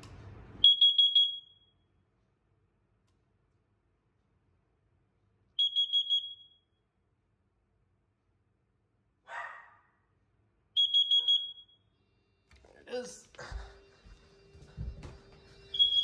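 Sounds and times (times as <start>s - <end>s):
alarm short high-pitched beeps: 15.7s - 16.0s.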